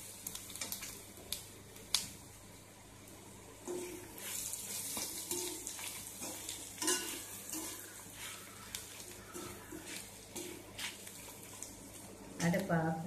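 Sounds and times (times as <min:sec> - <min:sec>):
garlic sizzling in oil: 0:00.0 - 0:13.0
spatula scraping a pan: 0:03.7 - 0:11.6.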